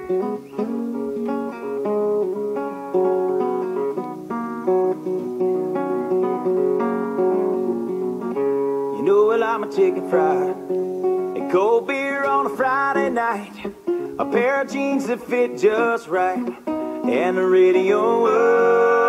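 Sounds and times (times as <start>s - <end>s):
acoustic guitar strumming: 0.0s - 19.0s
man singing: 8.9s - 19.0s.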